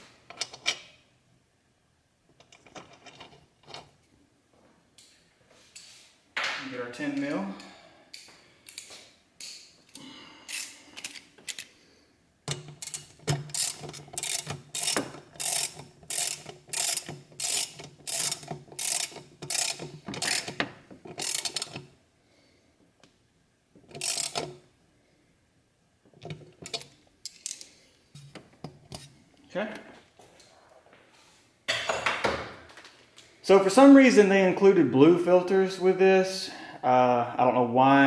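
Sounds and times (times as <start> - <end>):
socket ratchet clicking: 12.5 - 21.9, 23.9 - 24.6.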